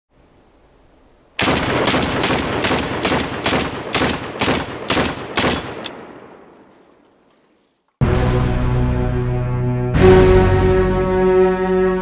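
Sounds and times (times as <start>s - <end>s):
pistol shots with echo: 1.4s - 6.6s.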